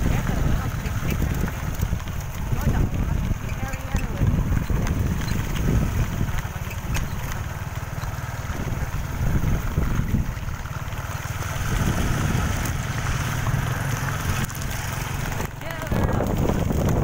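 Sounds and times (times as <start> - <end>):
motorcycle engine running: 0.0 - 17.0
wind buffeting microphone: 0.0 - 17.0.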